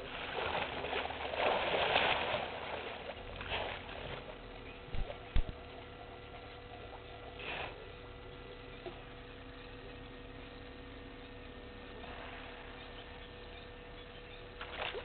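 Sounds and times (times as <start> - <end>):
hippos splashing in water: 0.0 - 5.6, 14.6 - 15.0.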